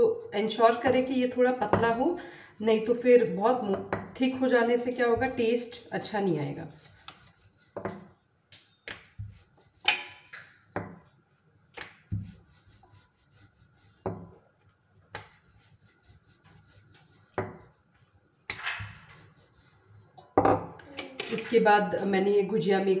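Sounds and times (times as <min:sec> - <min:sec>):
rolling pin rubbing on dough: 0:00.0 - 0:20.2
rolling pin knocking on counter: 0:03.7 - 0:04.2, 0:07.8 - 0:08.1, 0:10.8 - 0:11.0, 0:12.1 - 0:12.4, 0:14.0 - 0:14.3, 0:17.3 - 0:17.7, 0:20.4 - 0:20.7.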